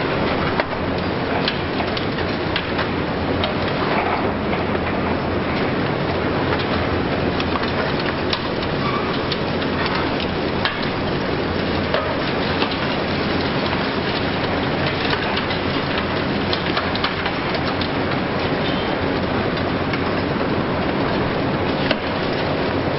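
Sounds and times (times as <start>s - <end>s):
concrete rubble cracking and falling: 6.5s - 11.0s, 11.8s - 20.4s.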